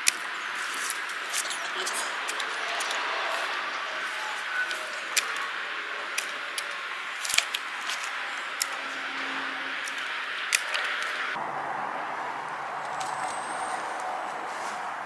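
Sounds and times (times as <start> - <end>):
pruning shears snipping branches: 0.0 - 8.9, 9.7 - 11.4.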